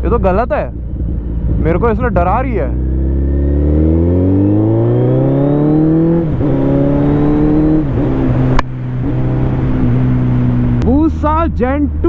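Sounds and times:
motorcycle engine accelerating hard: 0:00.2 - 0:10.9.

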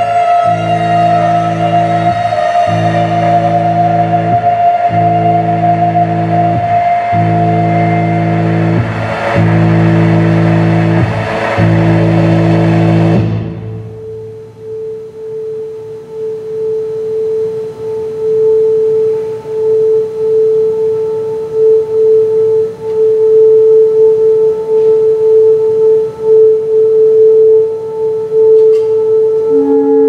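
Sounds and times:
band holding a steady drone note: 0:00.0 - 0:30.0.

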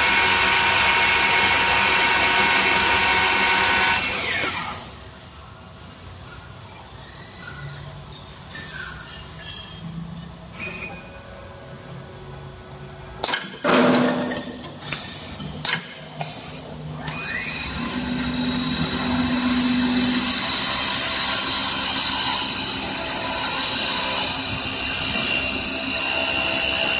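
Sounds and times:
wood lathe motor whine: 0:00.0 - 0:04.7, 0:17.0 - 0:26.9.

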